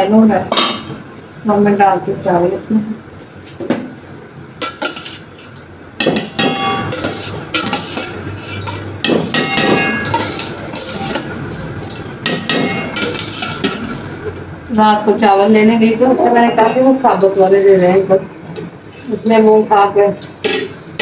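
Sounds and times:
spoon clinking against a pot: 6.0 - 13.8
metal spoon scraping a steel tray: 6.4 - 8.8, 9.4 - 11.3, 12.6 - 13.7.

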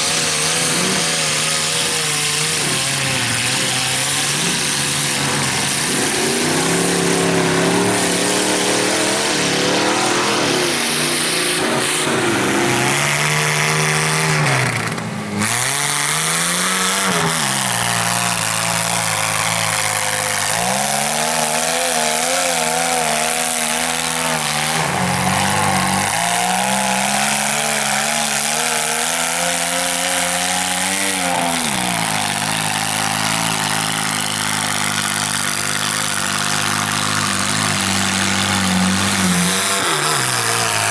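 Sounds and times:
truck churning through mud: 0.0 - 40.9
truck engine revving hard: 0.0 - 40.9.

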